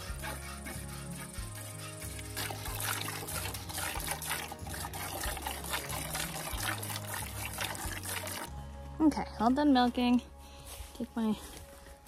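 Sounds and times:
milk squirting into bucket: 2.2s - 8.5s.

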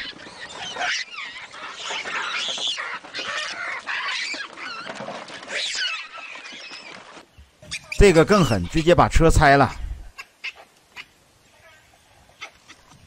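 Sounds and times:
baboons screaming: 0.0s - 9.4s.

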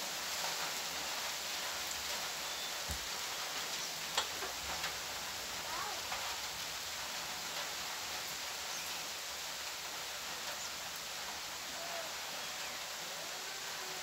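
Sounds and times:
steady rain falling: 0.0s - 14.0s.

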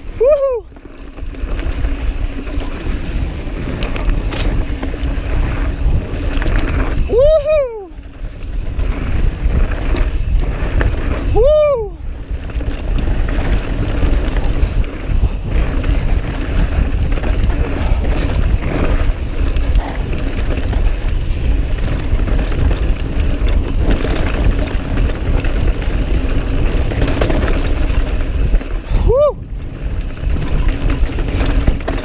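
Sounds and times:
bike clicks and rattles: 0.0s - 32.0s
tyres rolling over dirt: 0.0s - 32.0s
wind buffeting microphone: 0.0s - 32.0s.

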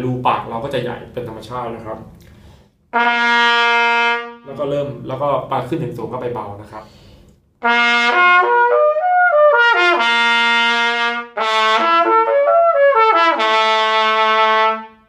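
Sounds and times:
trumpet playing lip slurs: 7.6s - 15.0s.

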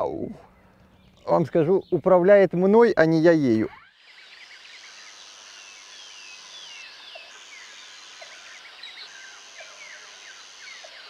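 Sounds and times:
small birds singing: 0.0s - 11.0s
high thin buzz: 3.7s - 11.0s.

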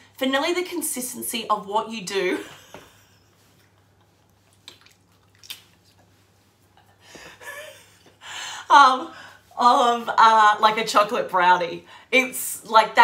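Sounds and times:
person's voice: 8.7s - 13.0s.

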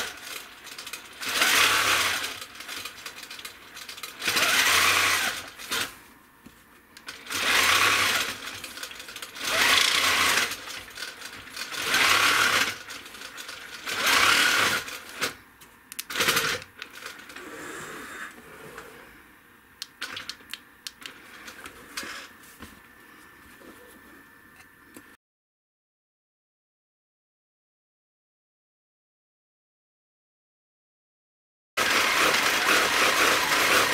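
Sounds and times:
quilting machine stitching: 0.0s - 6.0s, 7.1s - 15.4s, 16.1s - 18.9s, 31.8s - 33.9s.

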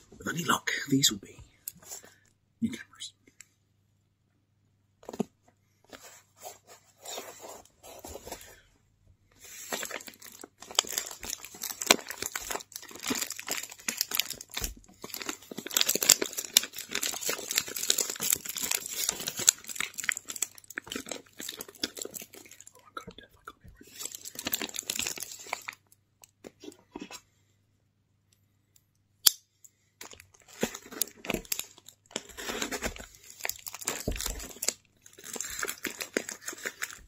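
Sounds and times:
paper and plastic wrap crinkling: 9.4s - 22.8s, 23.8s - 25.8s, 30.0s - 37.0s.

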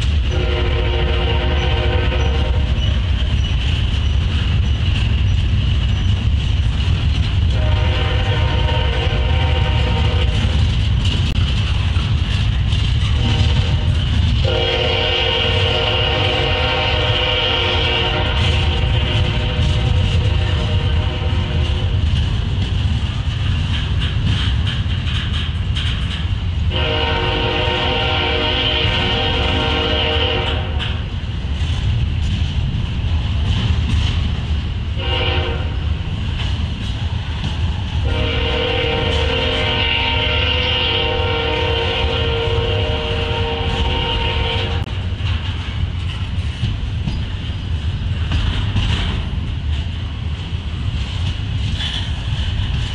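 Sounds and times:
freight trains rumbling past: 0.0s - 52.9s
wheels clacking over rail joints: 0.0s - 52.9s
locomotive air horn blasts: 0.3s - 2.8s, 7.5s - 10.4s, 13.2s - 22.0s, 26.7s - 30.8s, 35.0s - 35.8s, 38.0s - 44.9s.

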